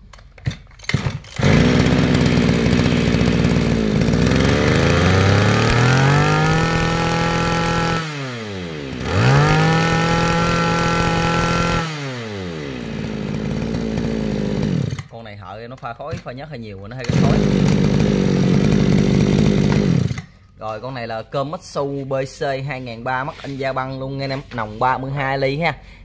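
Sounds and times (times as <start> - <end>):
brushcutter engine idling and revving: 0.9 - 15.1, 17.0 - 20.4.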